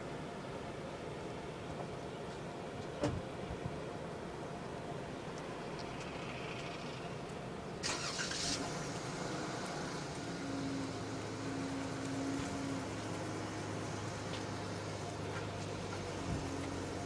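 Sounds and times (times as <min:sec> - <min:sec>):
car engine idling: 0:05.7 - 0:17.0.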